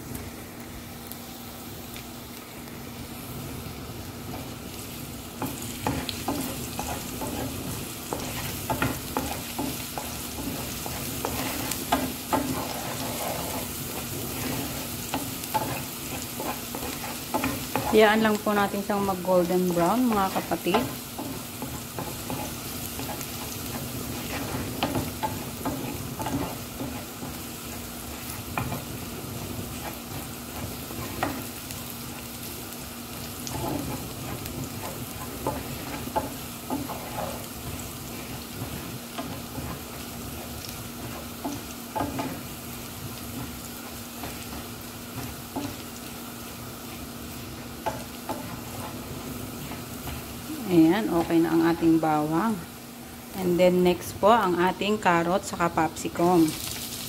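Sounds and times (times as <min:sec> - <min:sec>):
garlic sizzling in oil: 0:00.0 - 0:57.0
spatula scraping and tapping pan: 0:05.4 - 0:51.7.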